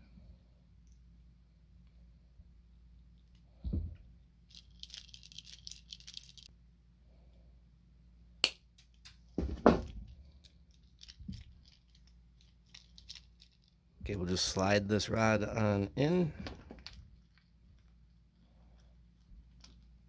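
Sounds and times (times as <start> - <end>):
tools thumping on wooden bench: 9.4 - 10.0.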